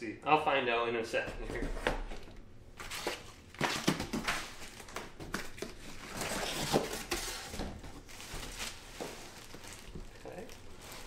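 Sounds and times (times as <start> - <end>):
cardboard rustling and scraping: 1.4 - 11.0
plastic wrap crinkling: 2.8 - 11.0.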